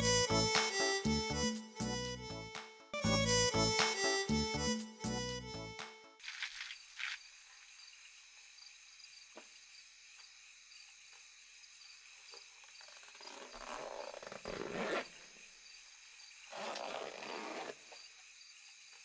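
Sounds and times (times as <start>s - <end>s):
crickets chirping: 6.2s - 19.0s
bag zipper dragged open: 13.2s - 15.2s, 16.5s - 17.8s.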